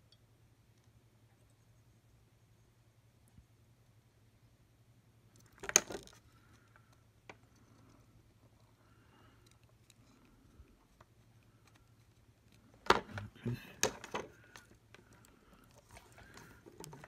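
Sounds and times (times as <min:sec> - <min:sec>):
small plastic pieces clattering: 0:05.4 - 0:06.3.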